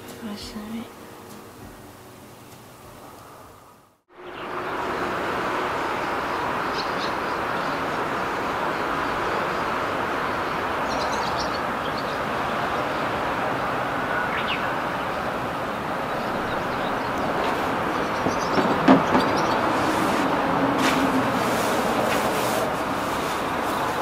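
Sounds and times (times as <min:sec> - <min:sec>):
steady rushing noise: 0:01.0 - 0:24.0.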